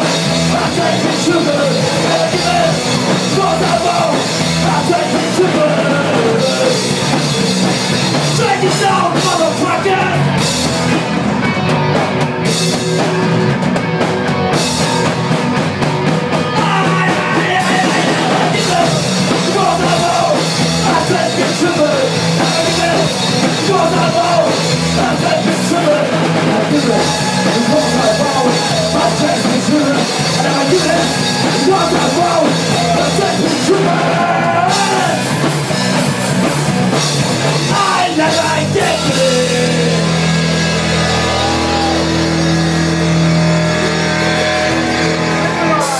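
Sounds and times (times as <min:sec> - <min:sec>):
person singing: 0:00.0 - 0:07.0, 0:16.4 - 0:35.3, 0:37.7 - 0:42.3
punk rock band playing live: 0:00.0 - 0:45.9.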